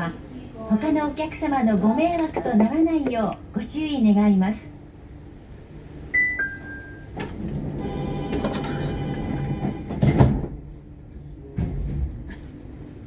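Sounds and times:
two-tone door chime: 6.2 - 7.2
sliding doors closing with thud: 7.2 - 10.8.

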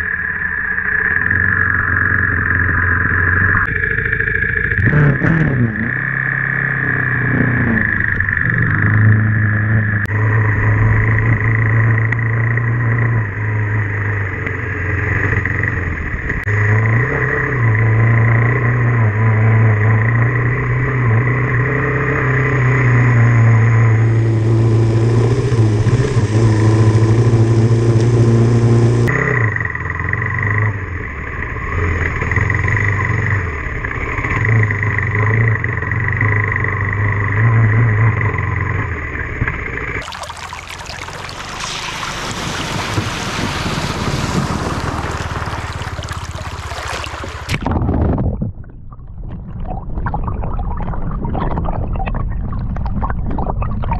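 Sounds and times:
tyre and wind noise: 42.1 - 49.6.

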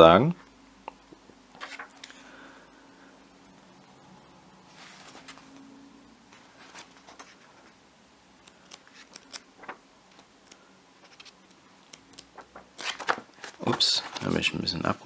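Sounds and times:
paper rustling: 1.6 - 2.1, 4.7 - 5.7, 6.3 - 7.8, 8.4 - 14.9.

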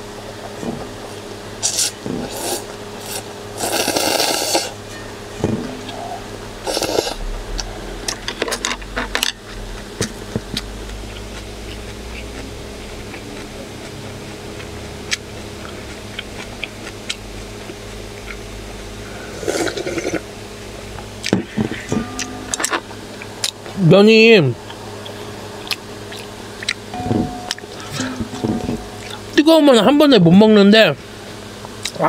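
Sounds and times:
noodles slurped: 1.6 - 4.8, 6.6 - 7.2
chewing: 9.7 - 18.4, 24.7 - 26.8.

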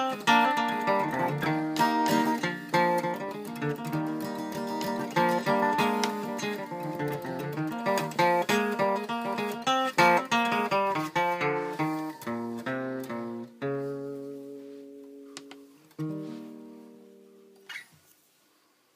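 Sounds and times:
acoustic guitar picking and chords: 0.0 - 17.9
guitar handling noise: 0.0 - 18.2.

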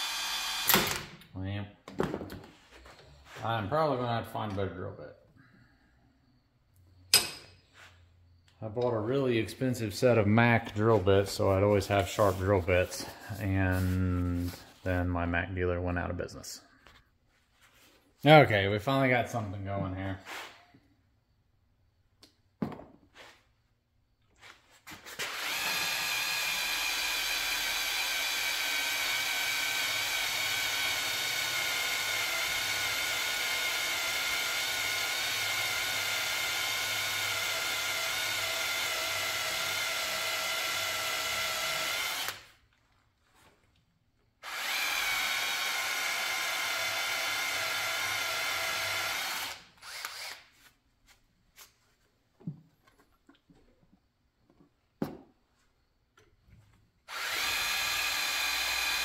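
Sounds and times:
electric drill whining: 0.0 - 1.1, 25.1 - 42.5, 44.4 - 50.5, 57.1 - 59.0.

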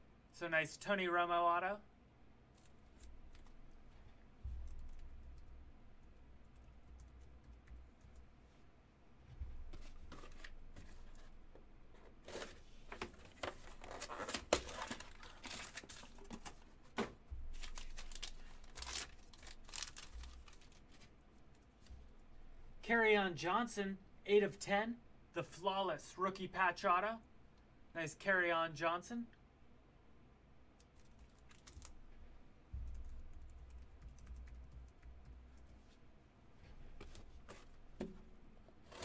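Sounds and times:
plastic wrapping crinkling and tearing: 13.6 - 16.5, 17.5 - 21.1.

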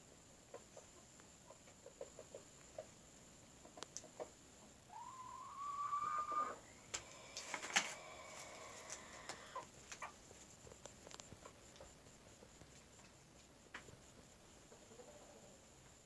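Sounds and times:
chickens clucking softly: 0.2 - 10.3, 11.2 - 16.0
faint clicks: 3.8 - 4.3
chicken squawk: 4.9 - 9.7.

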